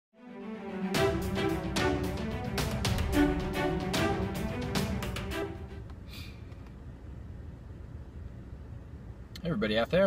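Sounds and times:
intro music held notes: 0:00.2 - 0:05.9
drum beat: 0:01.0 - 0:05.8.

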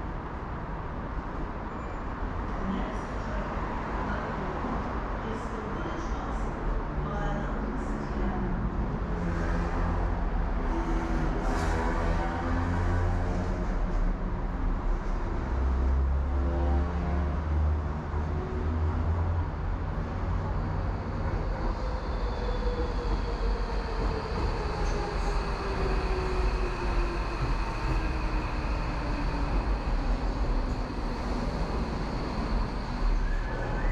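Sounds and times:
train wheels rumbling on track: 0:18.2 - 0:33.9
train whine: 0:20.9 - 0:33.9.

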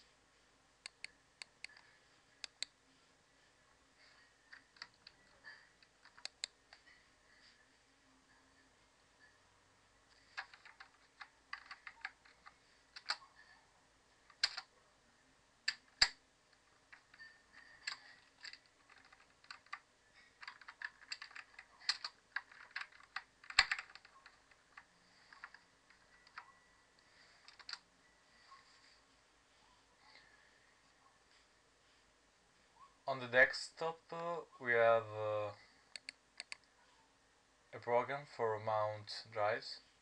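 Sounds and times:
keyboard keys clicking: 0:10.2 - 0:13.2, 0:14.3 - 0:14.7, 0:16.9 - 0:19.8, 0:20.4 - 0:26.5, 0:27.4 - 0:27.8.

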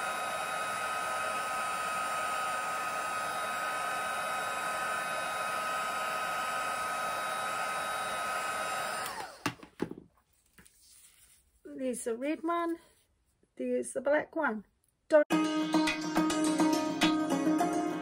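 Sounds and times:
hot-air blower running: 0:00.0 - 0:09.6.

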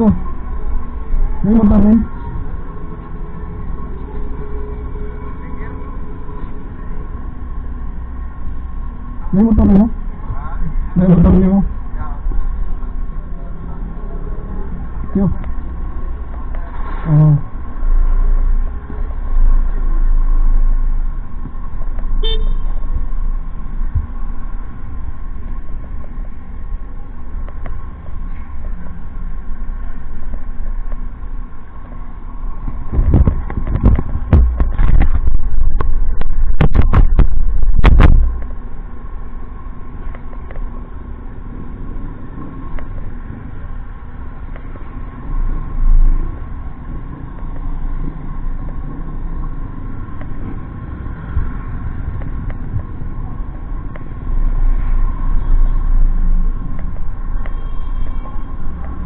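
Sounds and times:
passing traffic: 0:00.0 - 0:59.0
engine knocks: 0:32.6 - 0:38.6.

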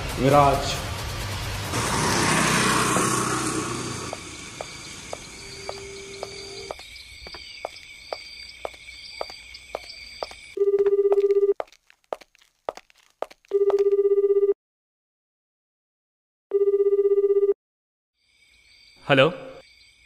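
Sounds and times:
soft footsteps: 0:04.1 - 0:13.9
phone ringing old-style ringtone: 0:10.6 - 0:11.6, 0:13.5 - 0:14.6, 0:16.5 - 0:17.6.

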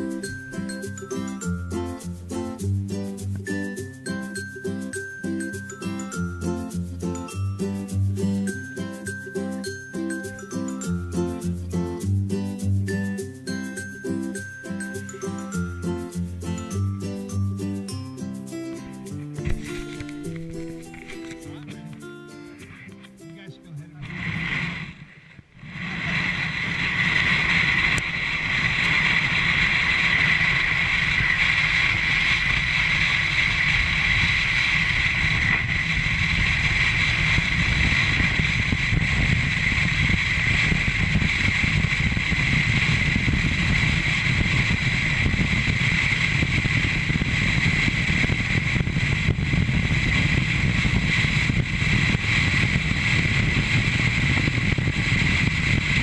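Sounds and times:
sled scraping over snow: 0:19.4 - 0:21.6, 0:22.7 - 0:56.0.

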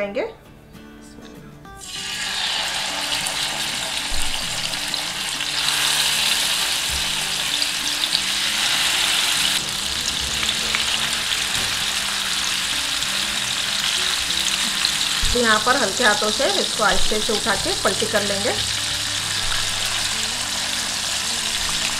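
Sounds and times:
chicken sizzling in hot oil: 0:01.8 - 0:21.9.

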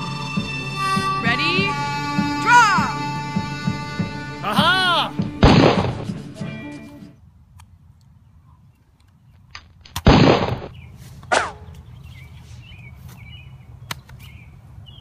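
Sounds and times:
gunshot bang: 0:05.4 - 0:06.0, 0:10.0 - 0:10.7.

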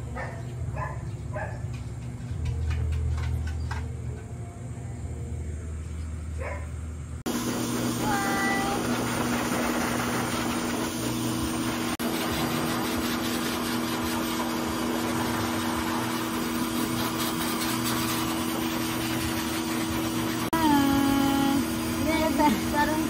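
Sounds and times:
pet blow dryer running: 0:07.3 - 0:23.0.

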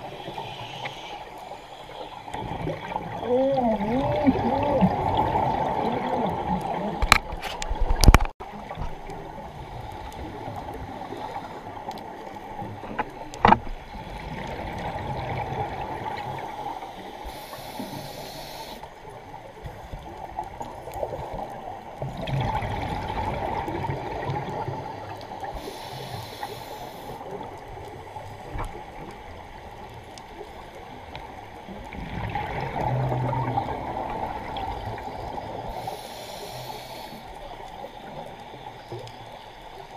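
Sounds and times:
underwater regulator bubbling hiss: 0:00.0 - 0:29.5, 0:30.2 - 0:39.9
exhaled bubbles burst: 0:02.4 - 0:07.1.

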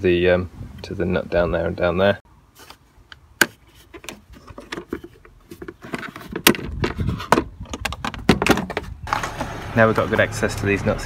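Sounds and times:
plastic air filter box handling: 0:03.4 - 0:09.5.

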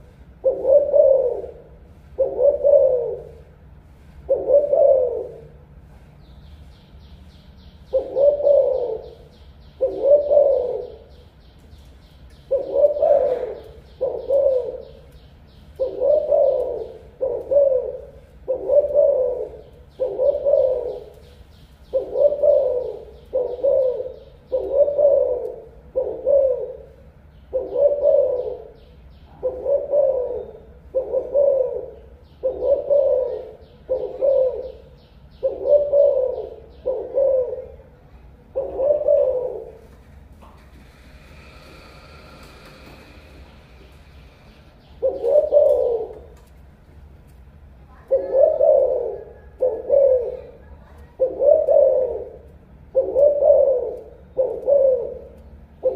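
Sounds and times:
dove cooing: 0:00.0 - 0:06.0, 0:07.8 - 0:11.4, 0:12.3 - 0:46.8, 0:47.9 - 0:55.9.

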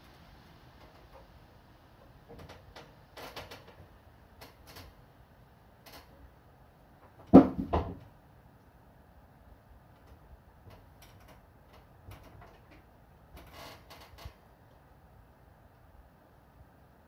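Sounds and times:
loud knocks: 0:07.2 - 0:08.1.

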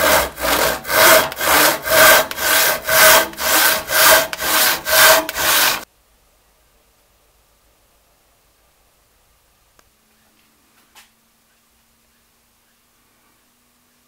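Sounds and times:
hand saw cutting wood: 0:00.0 - 0:05.8.

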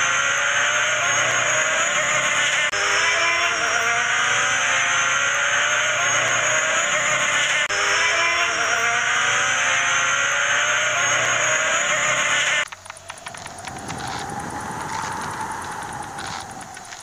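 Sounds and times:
insects buzzing in flight: 0:00.0 - 0:17.0
steady hiss: 0:12.0 - 0:17.0
faint ticks: 0:12.6 - 0:17.0.

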